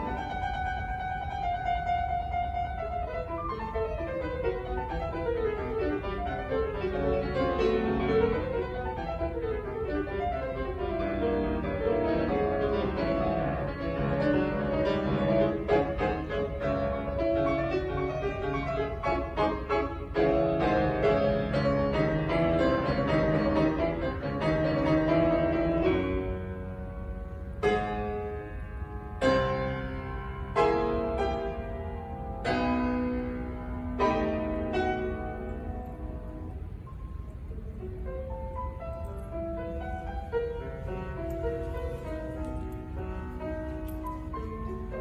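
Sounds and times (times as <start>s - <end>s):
grand piano solo: 0.0s - 45.0s.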